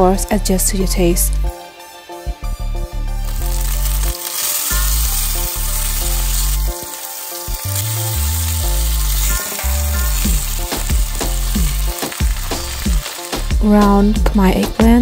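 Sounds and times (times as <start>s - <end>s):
background music: 0.0s - 15.0s
steak sizzling in butter: 3.2s - 13.8s.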